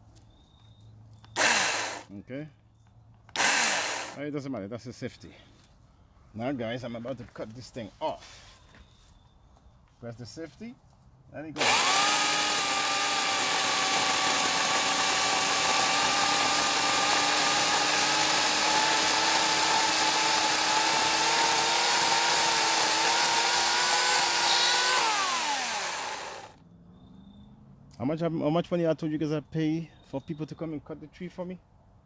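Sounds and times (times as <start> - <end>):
electric chainsaw whining: 1.4 - 2.1, 3.3 - 4.2, 11.6 - 26.6.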